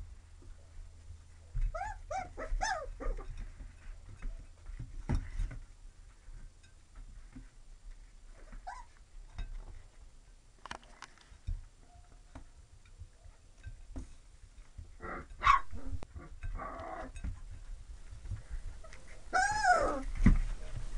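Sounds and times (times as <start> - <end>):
puppies yipping and whimpering: 1.7 - 3.4, 8.6 - 9.0, 18.8 - 20.2.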